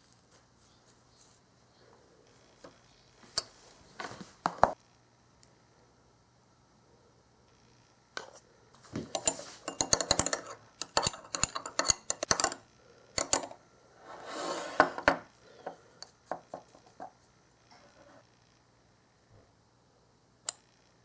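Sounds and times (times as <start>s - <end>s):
spoon clinking against glass bowl: 9.1s - 12.6s
rustling scrape: 14.0s - 15.0s.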